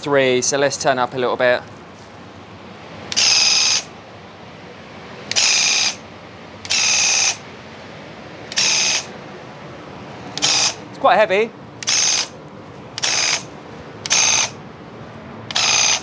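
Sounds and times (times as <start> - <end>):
airless sprayer pump buzzing: 3.1 - 4.0, 5.2 - 7.6, 8.5 - 9.2, 10.2 - 11.1, 11.8 - 14.6, 15.4 - 16.0.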